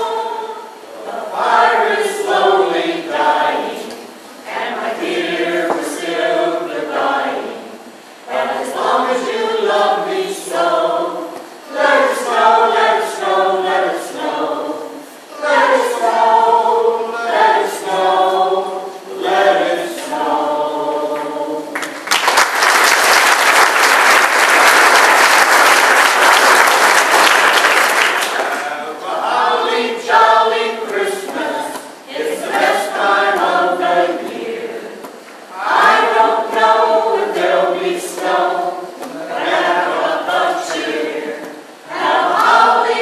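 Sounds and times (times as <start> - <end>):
choir singing a cappella: 0.0 - 22.0, 25.6 - 43.0
audience applause: 21.7 - 28.8.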